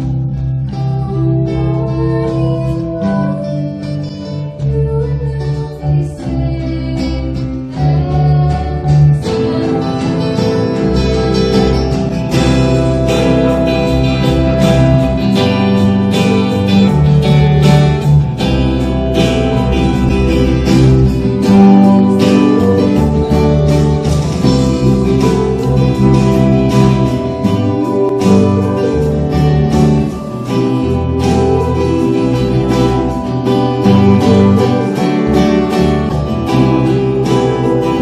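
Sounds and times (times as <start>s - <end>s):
acoustic guitar strumming: 0.0s - 38.0s
keyboard: 0.0s - 38.0s
woman singing: 0.7s - 11.8s, 21.4s - 38.0s
steady beat: 9.4s - 38.0s.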